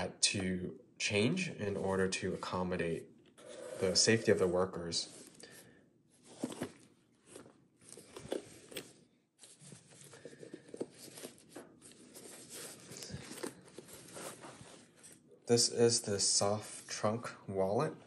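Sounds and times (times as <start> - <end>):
cloth rustling: 6.2 - 15.4.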